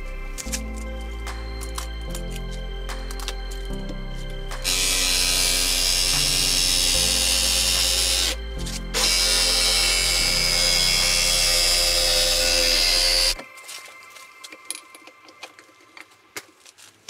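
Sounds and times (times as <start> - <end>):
power tool cutting sheet steel: 4.6 - 13.4.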